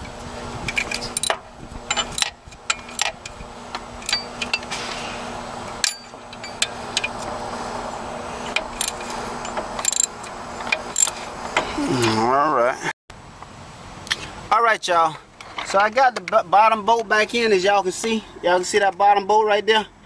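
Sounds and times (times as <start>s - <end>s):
hand tool clicking on metal bolt: 0.7s - 4.7s, 8.5s - 11.2s.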